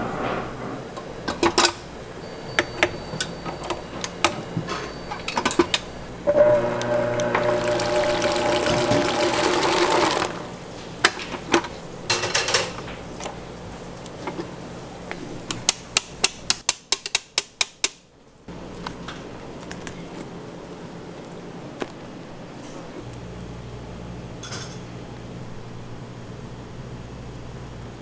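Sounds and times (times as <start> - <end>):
stand mixer whisk running: 6.3 - 10.6.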